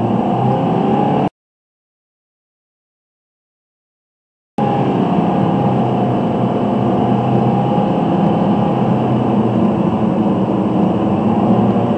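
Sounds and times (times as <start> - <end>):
car engine and tyre drone: 0.0 - 1.3, 4.6 - 11.9.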